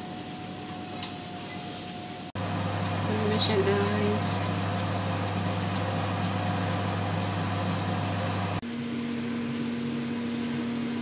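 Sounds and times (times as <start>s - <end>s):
oven fan humming: 0.0s - 11.0s
higher steady hum: 2.1s - 10.2s.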